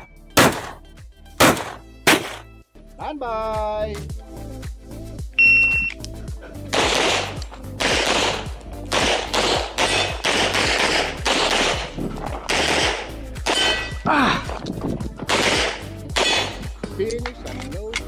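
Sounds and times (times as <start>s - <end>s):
background music with steady beat: 0.0s - 18.0s
pistol shots: 0.4s - 0.8s, 1.4s - 2.5s, 6.7s - 14.0s, 15.3s - 16.7s
shot timer beep: 5.4s - 6.0s.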